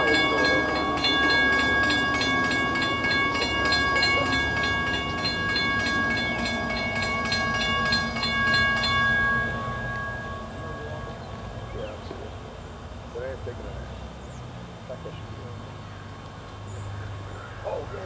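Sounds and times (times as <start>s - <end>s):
crossing bell ringing fast: 0.0s - 12.2s.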